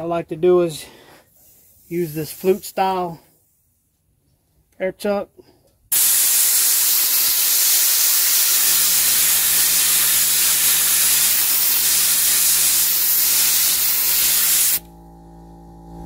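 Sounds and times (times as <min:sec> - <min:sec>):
compressed air hissing: 0:00.8 - 0:03.2, 0:05.9 - 0:14.8
low motor hum: 0:14.8 - 0:16.0.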